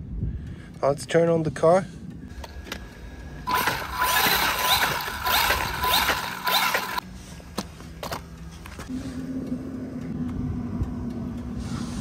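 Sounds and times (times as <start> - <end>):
rc car motor whirring: 3.5 - 7.0.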